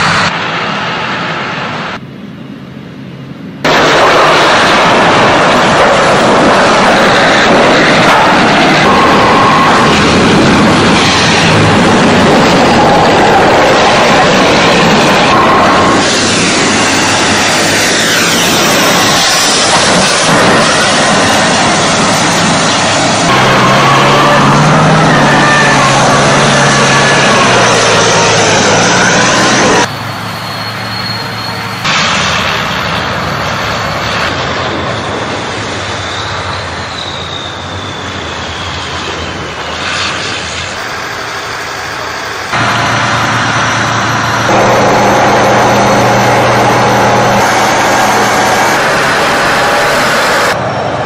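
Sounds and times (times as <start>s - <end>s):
tracked vehicle engine rumbling: 0.0s - 51.0s
rush of churned soil: 39.6s - 50.6s.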